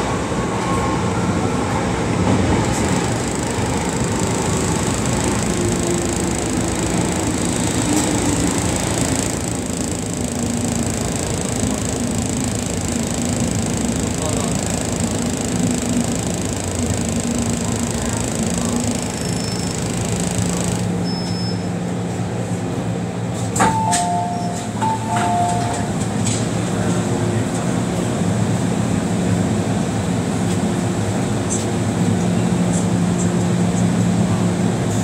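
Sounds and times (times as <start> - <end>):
train equipment hum: 0.0 - 21.1.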